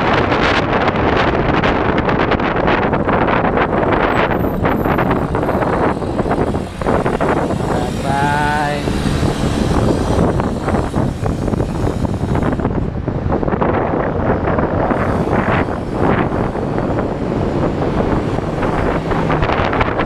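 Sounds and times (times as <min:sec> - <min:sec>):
road and traffic noise: 0:00.0 - 0:20.0
wind buffeting microphone: 0:00.0 - 0:20.0
wavering pitched sound: 0:04.1 - 0:12.8.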